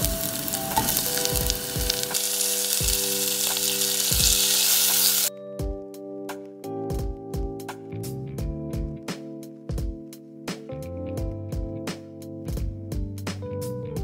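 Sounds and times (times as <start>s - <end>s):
pork frying sizzle: 0.0s - 5.3s
music with plucked notes: 0.0s - 14.0s.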